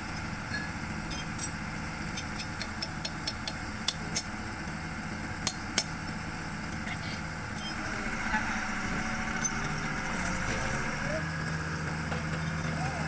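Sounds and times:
diesel engine running: 0.0s - 13.0s
sharp clicks and knocks: 2.1s - 4.3s.

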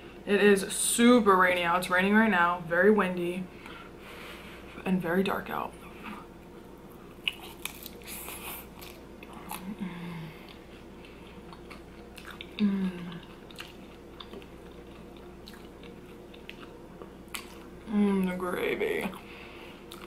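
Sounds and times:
crunching fries: 7.2s - 9.8s, 10.5s - 17.8s
wet chewing: 7.2s - 9.8s, 10.4s - 17.8s, 19.1s - 20.0s.

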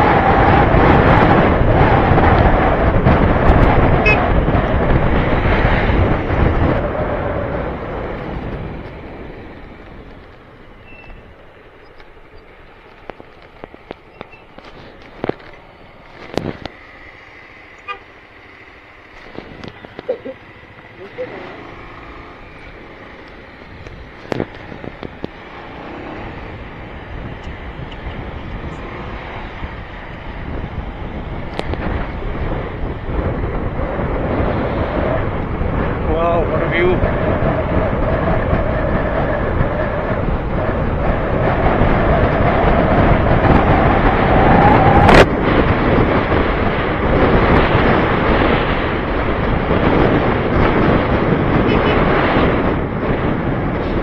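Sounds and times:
motorcycle engine: 0.0s - 54.0s
wind rushing over microphone: 0.0s - 54.0s.

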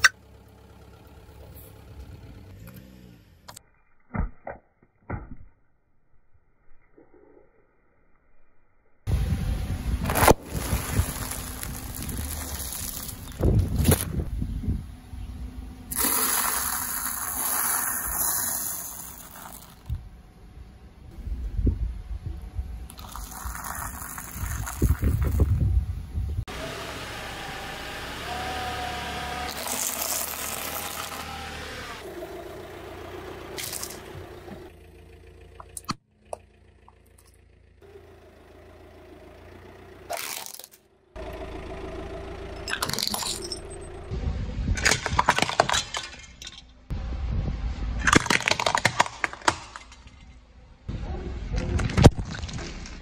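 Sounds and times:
car tyre crushing objects: 10.0s - 14.3s, 15.8s - 20.0s, 22.9s - 25.6s, 29.2s - 32.1s, 33.5s - 34.8s, 40.0s - 40.9s, 42.6s - 44.0s, 44.7s - 46.9s, 48.0s - 50.6s, 51.8s - 53.0s
ceramic figurines breaking: 42.6s - 43.9s, 44.8s - 46.8s, 48.0s - 50.4s.

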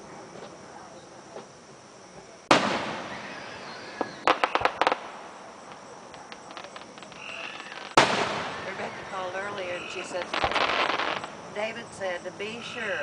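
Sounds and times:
faint crackling: 0.0s - 13.0s
firework sharp cracks: 2.4s - 11.6s
firework boom echoing: 2.5s - 11.6s.

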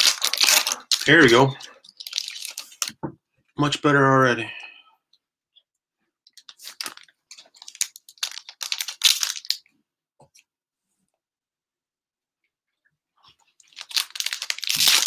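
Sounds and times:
plastic wrappers crinkling: 0.0s - 3.0s, 6.3s - 9.6s, 13.6s - 15.0s.

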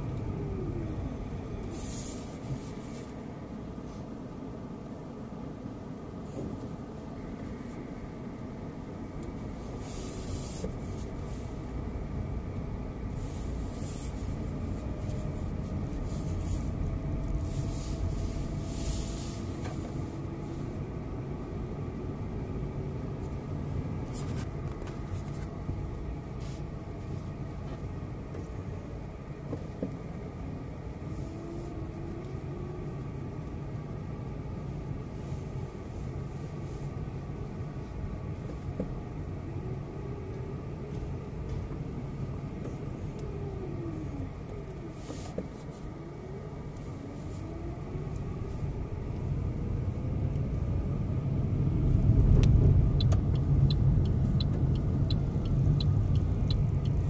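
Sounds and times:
car engine rumble: 0.0s - 57.0s
road noise: 0.0s - 57.0s
hiss: 1.7s - 2.6s.

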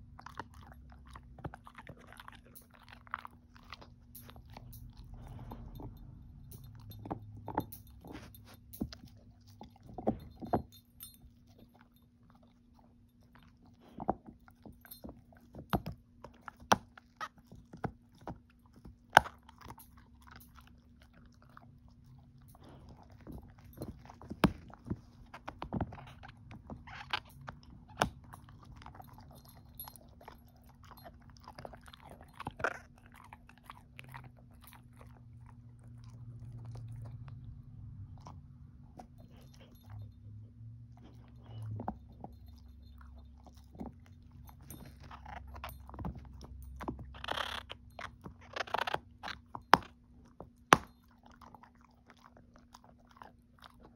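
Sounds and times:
teeth clicking on a chew: 0.0s - 8.0s
dog gnawing on a hard chew: 0.0s - 40.1s, 40.9s - 53.9s.

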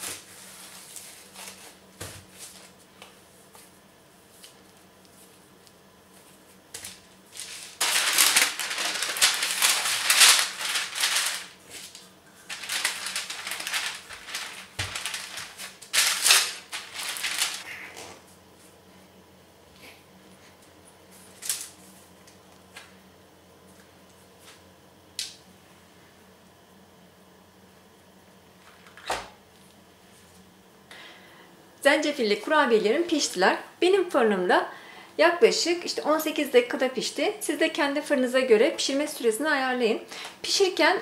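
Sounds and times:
parchment paper crinkling: 6.8s - 17.7s.

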